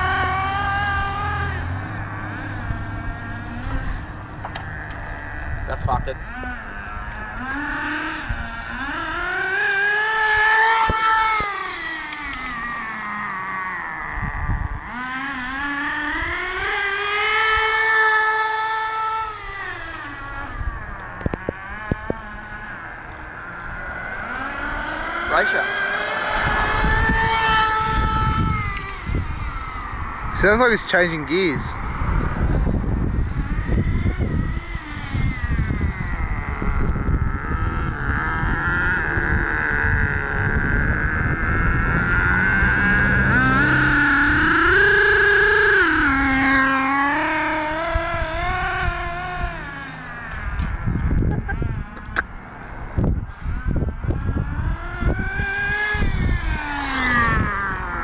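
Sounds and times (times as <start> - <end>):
small two-stroke engine revving: 0.0 - 58.0
low rumble: 20.5 - 30.4.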